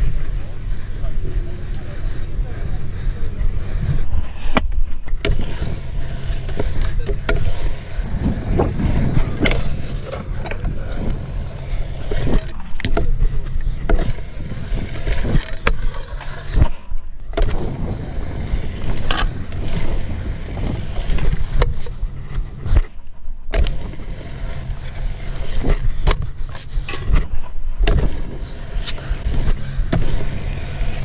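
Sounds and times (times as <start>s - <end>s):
scooter wheels rolling on concrete: 0.0s - 4.0s, 5.1s - 16.6s, 17.3s - 22.8s, 23.6s - 27.2s, 28.1s - 31.0s
scooter wheels clacking: 5.1s - 16.6s.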